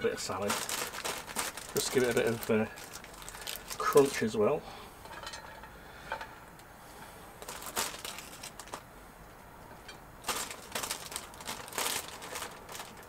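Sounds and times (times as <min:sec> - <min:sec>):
plastic bag rustling: 0:00.0 - 0:04.4, 0:07.4 - 0:08.9, 0:10.2 - 0:13.0.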